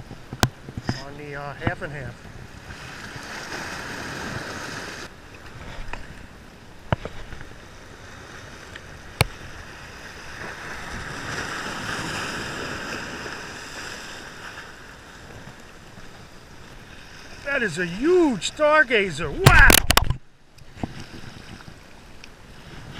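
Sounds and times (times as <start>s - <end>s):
waves splashing against rocks: 0.0s - 22.9s.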